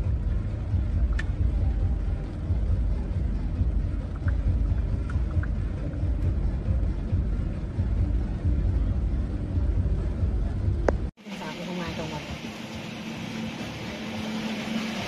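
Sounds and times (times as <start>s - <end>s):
traffic rumble: 0.0s - 15.0s
rain hissing: 11.2s - 15.0s.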